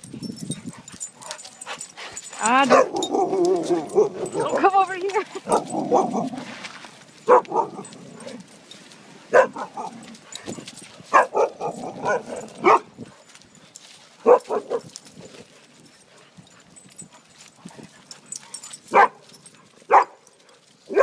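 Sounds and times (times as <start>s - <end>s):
dogs barking: 1.0s - 6.5s, 7.2s - 8.4s, 9.3s - 10.5s, 11.1s - 13.0s, 14.2s - 14.9s, 18.5s - 20.3s.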